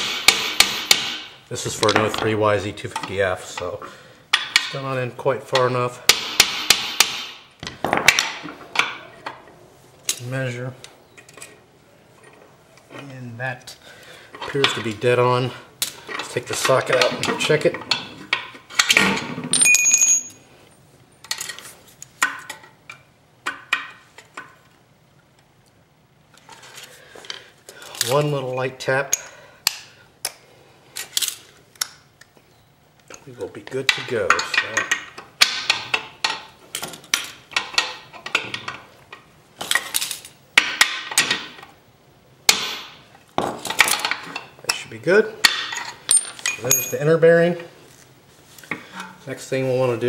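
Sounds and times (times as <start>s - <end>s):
metallic ring: 19.5s - 20.5s, 46.1s - 47.2s.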